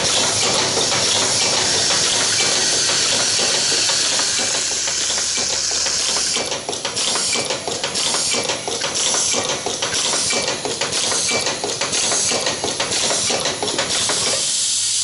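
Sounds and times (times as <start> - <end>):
machine clattering and clicking: 0.0 - 14.5
steady hiss: 14.2 - 15.0.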